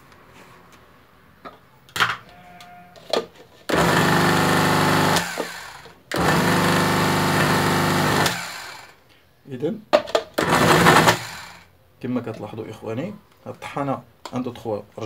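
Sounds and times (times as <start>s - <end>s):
electric grinder motor running: 3.7s - 9.0s, 10.4s - 11.7s.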